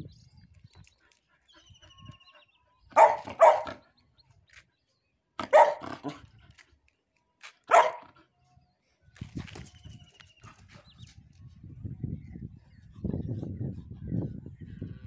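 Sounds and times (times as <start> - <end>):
puppy barking: 2.9 - 3.8, 5.4 - 6.2, 7.7 - 8.1.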